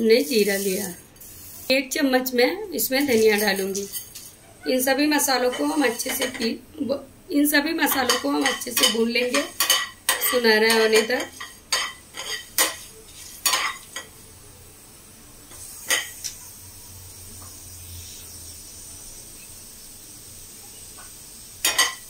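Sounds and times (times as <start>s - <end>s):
faint sizzle: 0.0s - 22.0s
spatula scraping pan: 3.0s - 6.6s, 7.9s - 14.1s.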